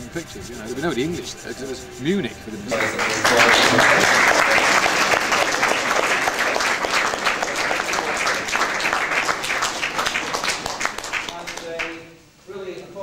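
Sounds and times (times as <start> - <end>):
people applauding: 2.7 - 12.1.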